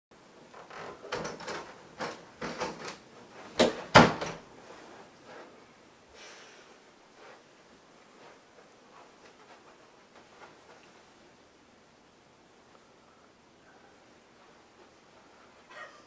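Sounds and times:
rustling and shuffling: 0.2s - 16.0s
door knocks and bumps: 3.6s - 4.4s.

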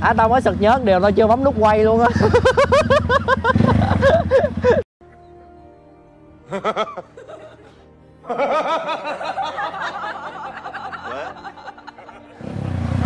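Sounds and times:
man cackling laughter: 2.1s - 4.8s, 6.4s - 12.4s.

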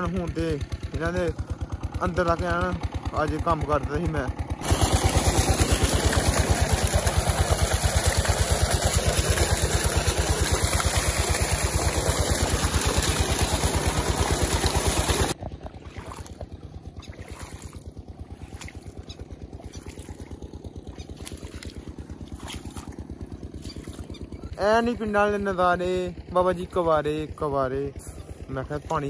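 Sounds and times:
pump engine thudding: 0.0s - 29.0s
water gushing and splashing: 4.6s - 24.1s
footsteps on wet grass: 15.5s - 24.2s.

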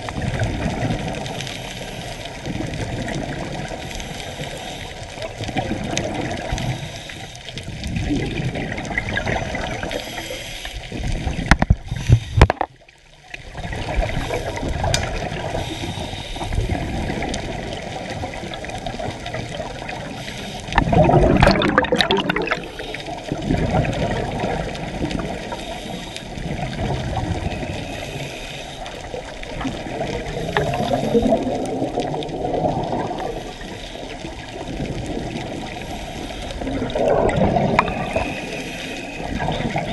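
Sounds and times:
muffled underwater water rush: 0.0s - 39.9s
scuba exhaust bubbles: 0.0s - 39.9s.

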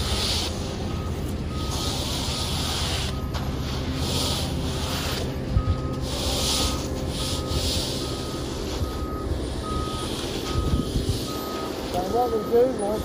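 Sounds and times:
diesel engine running: 0.0s - 13.0s
rakes scraping wet concrete: 0.0s - 13.0s
reversing alarm beeps: 0.0s - 13.0s.

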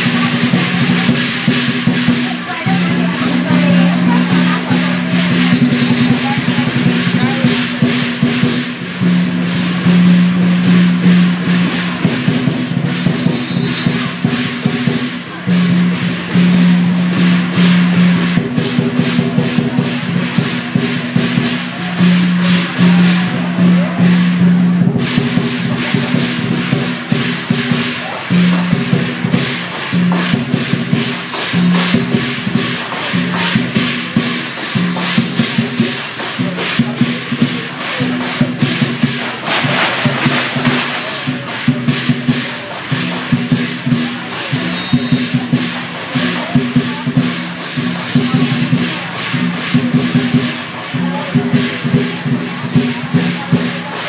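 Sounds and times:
percussion band drum and cymbals: 0.0s - 54.0s.

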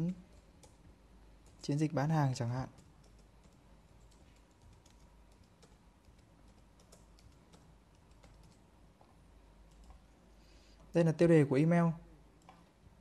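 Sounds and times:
typing on computer keyboard: 2.7s - 8.6s, 9.7s - 10.0s.

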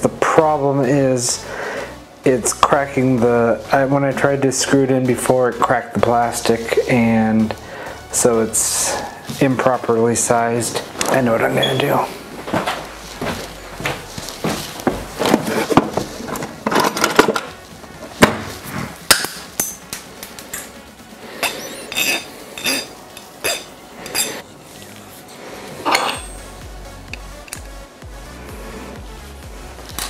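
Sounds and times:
background music: 0.0s - 30.0s
metal hand tools clattering: 21.4s - 24.4s.

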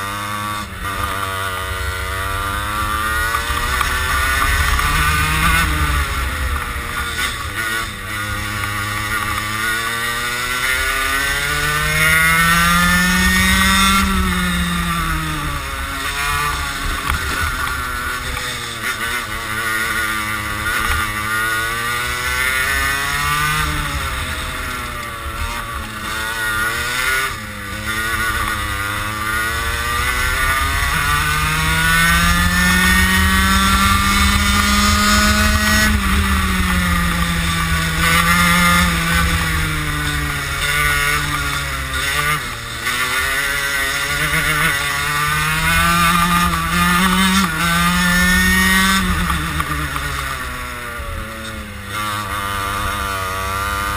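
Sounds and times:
kart engine revving: 0.0s - 53.9s.

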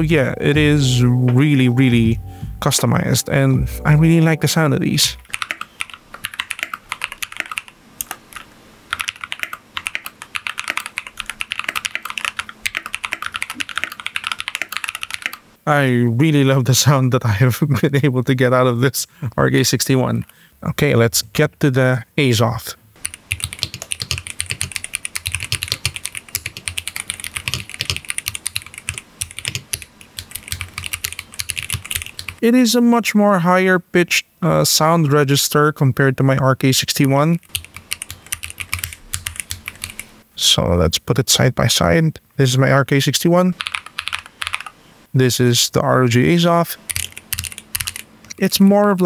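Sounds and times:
mechanical keyboard typing: 5.2s - 15.4s, 23.0s - 32.4s, 37.4s - 40.1s, 43.6s - 44.7s, 46.9s - 48.1s.

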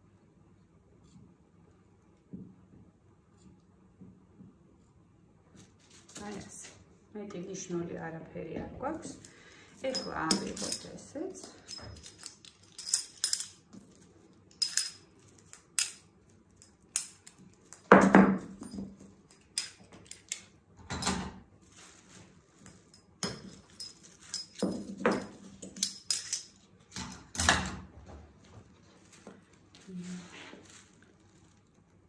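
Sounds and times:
metallic pin clicks and jingles: 9.1s - 17.9s, 18.6s - 20.5s, 22.9s - 27.6s
paper and fabric handling: 21.6s - 22.9s, 28.7s - 32.0s.

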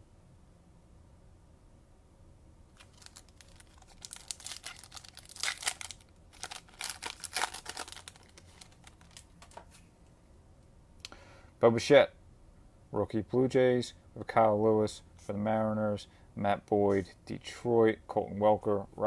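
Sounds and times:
wrapper crinkling and tearing: 2.8s - 9.8s.

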